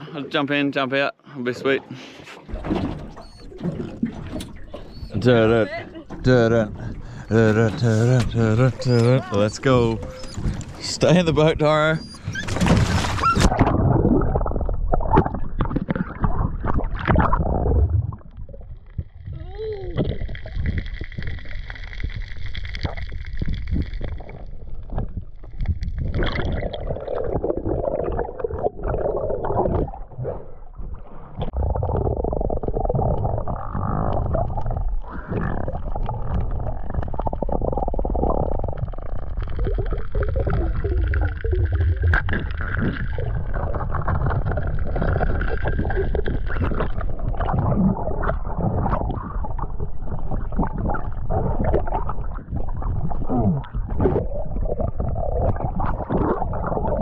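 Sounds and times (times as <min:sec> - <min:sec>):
underwater water rushing and gurgling: 0:02.1 - 0:57.0
low underwater rumble: 0:02.4 - 0:57.0
underwater clicks: 0:31.4 - 0:54.3.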